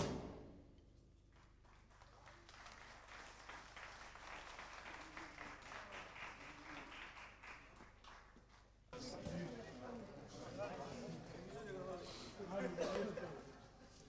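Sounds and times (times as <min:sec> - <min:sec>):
faint crowd applauding: 0:01.3 - 0:10.1.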